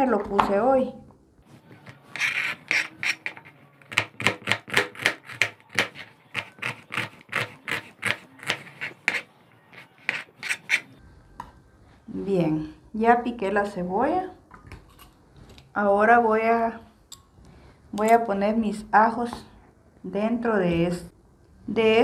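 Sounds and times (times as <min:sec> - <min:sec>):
knife chopping on cutting board: 0:02.2 - 0:09.3.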